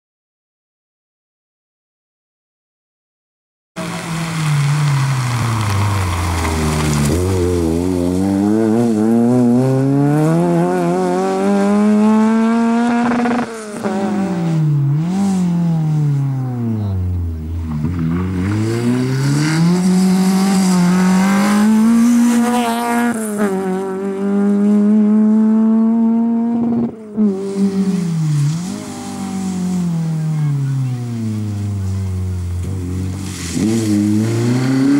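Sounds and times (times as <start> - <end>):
rally car engine revving: 3.8 - 34.9.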